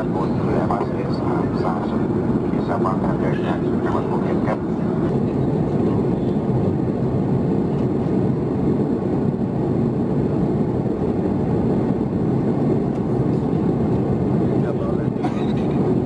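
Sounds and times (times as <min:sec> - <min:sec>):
jet engine cabin rush: 0:00.0 - 0:16.0.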